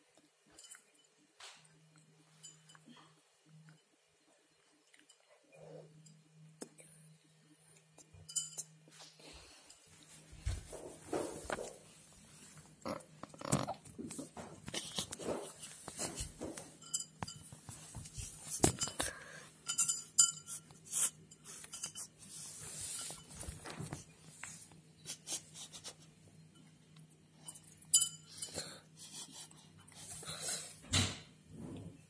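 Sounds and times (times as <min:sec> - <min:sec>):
kitten eating clinking bowl: 0:08.0 - 0:08.9, 0:14.8 - 0:24.1, 0:26.4 - 0:28.8.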